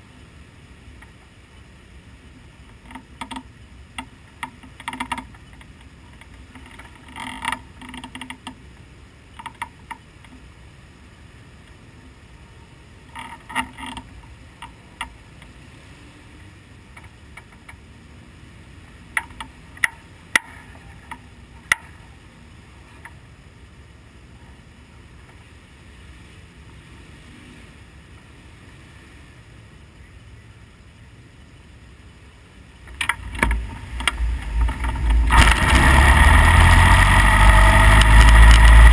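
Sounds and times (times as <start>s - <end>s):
low steady background noise: 0.0s - 38.9s
light mechanical clicks and creaks: 2.6s - 8.7s, 9.3s - 10.5s, 13.0s - 15.6s, 16.9s - 17.8s, 19.1s - 22.0s, 22.9s - 23.2s, 32.8s - 38.9s
race car engine: 32.8s - 38.9s.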